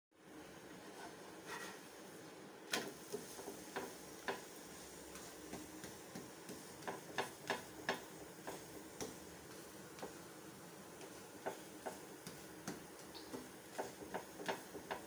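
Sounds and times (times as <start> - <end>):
faint steady hiss: 0.2 - 15.0
wooden spatula tapping pan: 3.1 - 4.5, 5.1 - 10.2, 11.0 - 15.0.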